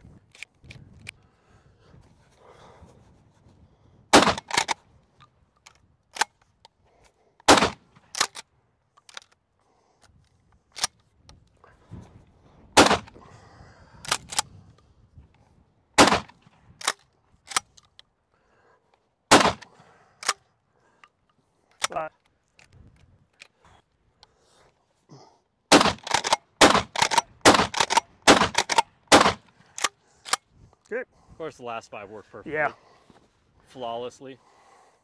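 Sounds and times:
shotgun firing: 4.1 - 4.7, 7.5 - 7.8, 12.8 - 13.1, 16.0 - 16.3, 19.3 - 19.6, 25.7 - 29.5.

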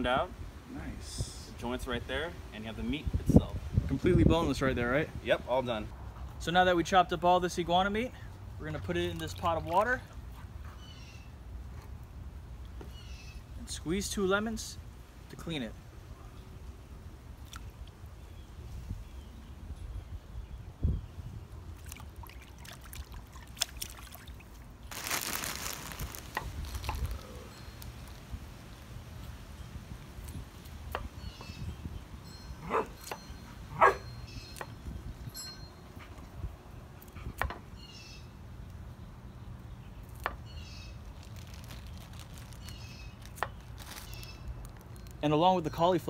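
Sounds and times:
low outdoor background: 0.0 - 46.0
water sloshing in a pot: 21.8 - 27.8.

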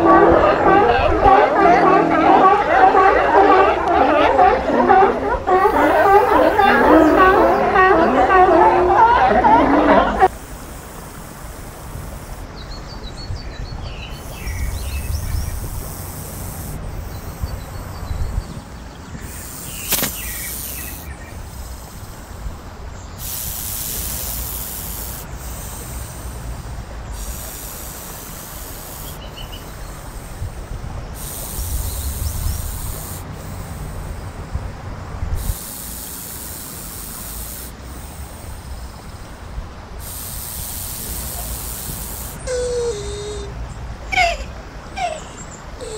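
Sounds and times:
snake hissing: 5.5 - 13.2, 14.0 - 34.6, 35.3 - 43.6
faint bird chirps: 10.3 - 34.4.

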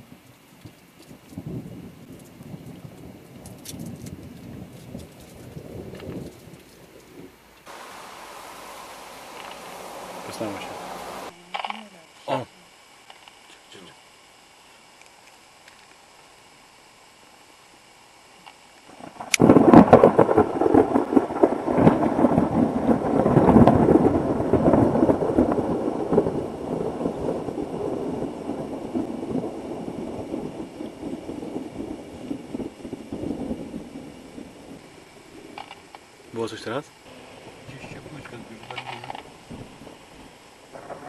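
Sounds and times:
rolling thunder rumble: 1.4 - 11.3, 18.9 - 35.6, 37.1 - 41.0
thunder crack: 7.7 - 11.3, 19.0 - 35.6, 37.1 - 41.0.

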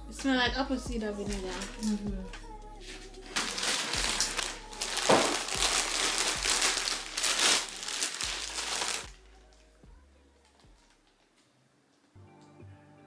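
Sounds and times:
plastic bag crinkling: 1.3 - 2.0, 2.8 - 9.6.

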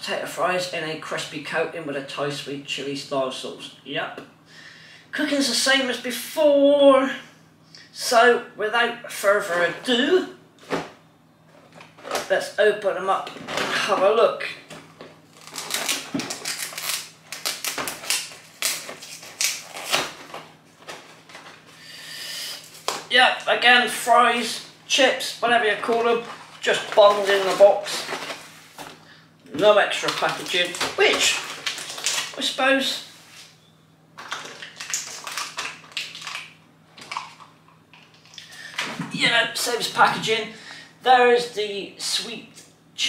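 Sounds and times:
cardboard tearing: 15.3 - 21.6
plastic sachet crinkling: 15.3 - 21.7, 25.8 - 28.5, 29.6 - 32.6, 34.2 - 38.5.

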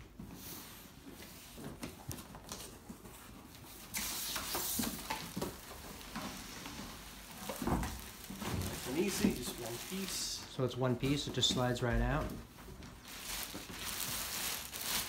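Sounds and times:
cardboard rustling and scraping: 0.2 - 10.4
plastic wrapping crinkling: 1.5 - 15.0.

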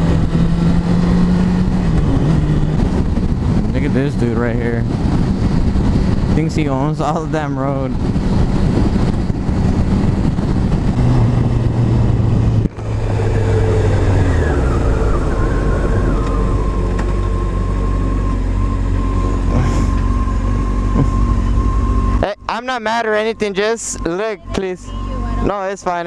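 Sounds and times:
motorcycle engine running: 0.0 - 26.0
wind noise: 0.0 - 26.0
steady high tone: 12.7 - 26.0.

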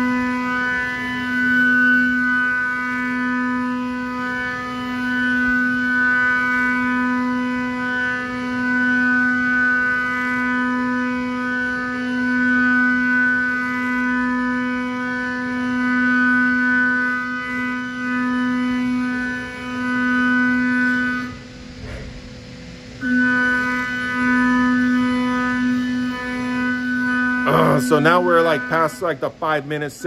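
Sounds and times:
milling spindle whine: 0.0 - 21.6, 22.6 - 30.0.

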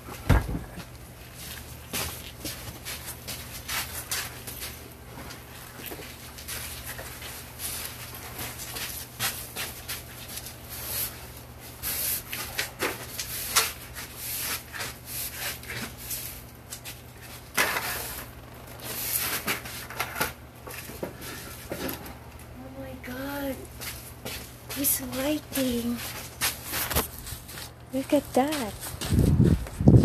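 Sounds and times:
broom sweeping wooden boards: 6.1 - 21.8.

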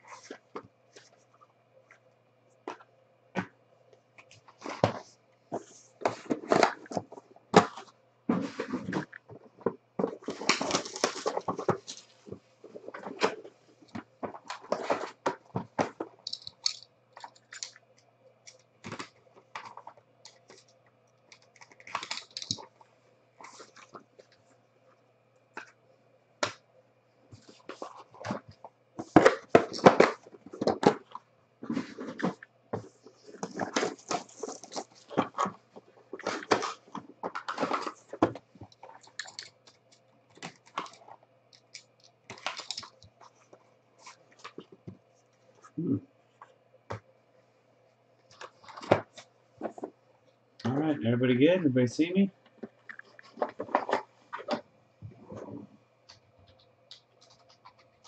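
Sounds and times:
cardboard boxes being handled: 31.6 - 38.4.

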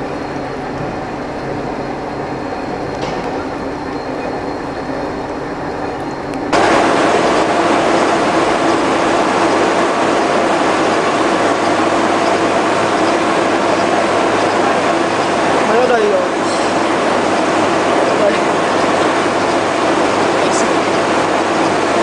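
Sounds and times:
gear-cutting machine humming: 0.0 - 22.0.

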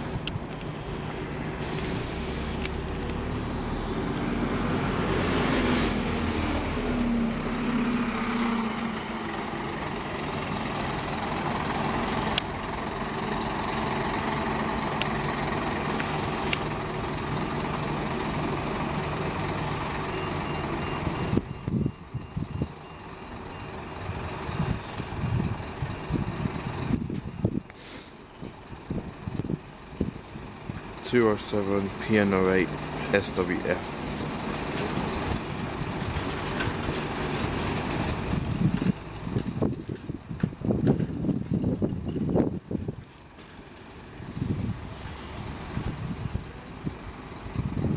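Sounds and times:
bus engine revving: 0.0 - 21.9
compressed air hisses: 1.4 - 2.7, 27.7 - 28.2.

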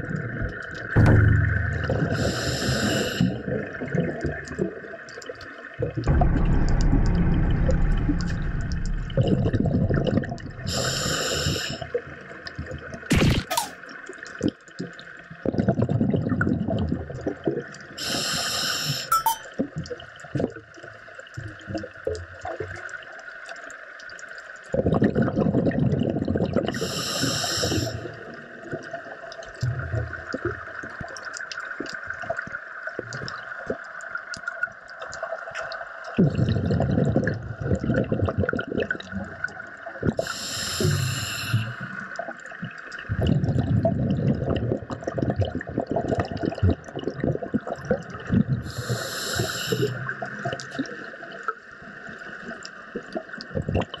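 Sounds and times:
rumbling exhaled bubbles: 0.0 - 4.9, 5.8 - 13.1, 15.4 - 17.6, 24.7 - 26.8, 36.1 - 49.1, 53.0 - 54.0
hissing regulator inhales: 2.1 - 3.5, 10.7 - 11.9, 18.0 - 19.1, 26.8 - 28.2, 40.2 - 42.0, 48.7 - 50.0.

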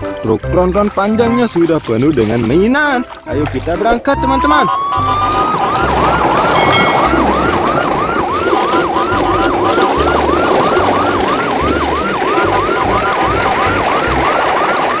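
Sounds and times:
siren yelping: 4.0 - 15.0.

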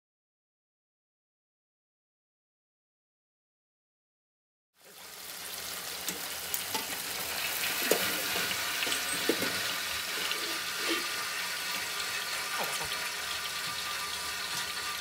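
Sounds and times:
chicken deep-frying in oil: 4.8 - 15.0.

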